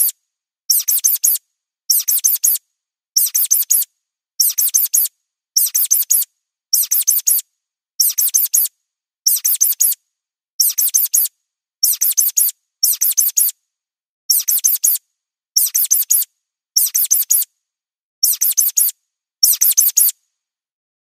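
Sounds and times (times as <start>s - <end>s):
mouse squeaks: 0.0s - 2.6s, 3.2s - 7.4s, 8.0s - 8.7s, 9.3s - 10.0s, 10.6s - 13.6s, 14.3s - 15.0s, 15.6s - 17.5s, 18.2s - 20.2s.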